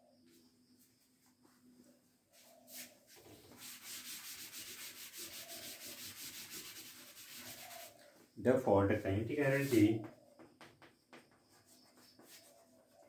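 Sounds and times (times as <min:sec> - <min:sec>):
eraser rubbing on chalkboard: 0:02.7 - 0:08.0, 0:09.3 - 0:10.2, 0:11.5 - 0:13.0.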